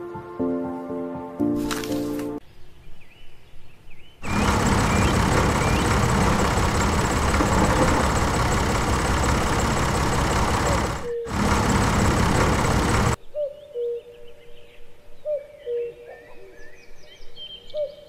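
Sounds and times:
tractor engine idling: 4.2s - 13.2s.

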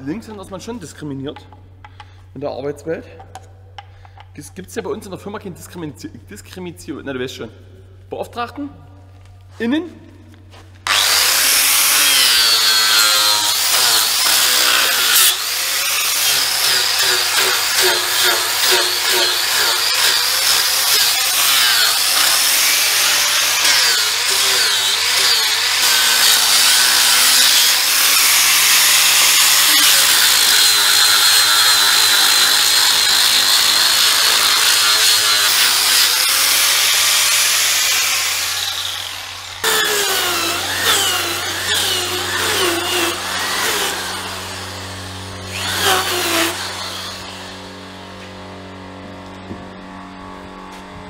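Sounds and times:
electric power tool cutting wood: 10.8s - 50.8s
steady low hum: 38.4s - 51.0s.

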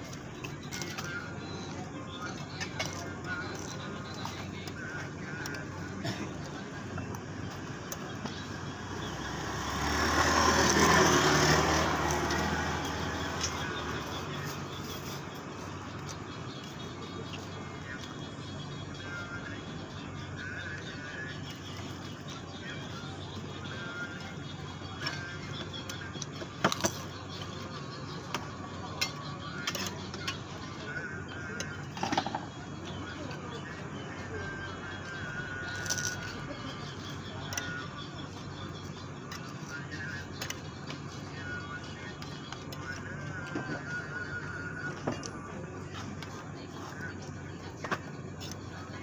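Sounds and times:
vehicle passing by: 8.7s - 14.1s.

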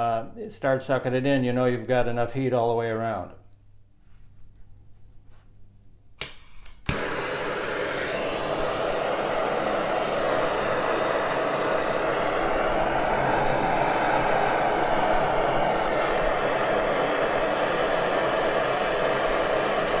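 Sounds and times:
gas torch igniter clicking: 6.2s - 20.0s
torch flame rushing: 6.9s - 20.0s.

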